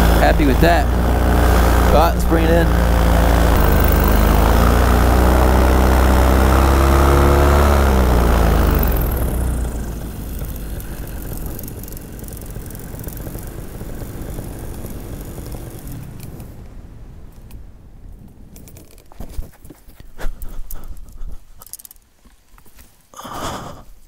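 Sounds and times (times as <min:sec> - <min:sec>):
paramotor engine and propeller: 0:00.0 - 0:17.6.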